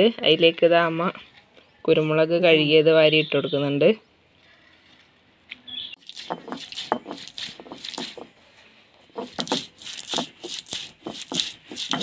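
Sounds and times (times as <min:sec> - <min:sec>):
stone roller crushing peppercorns: 0:06.0 - 0:08.4, 0:09.1 - 0:12.0.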